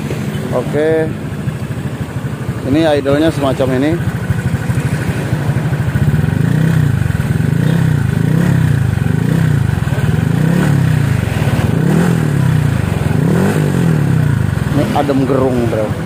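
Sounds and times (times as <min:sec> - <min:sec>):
scooter engine idling: 0:00.0 - 0:16.0.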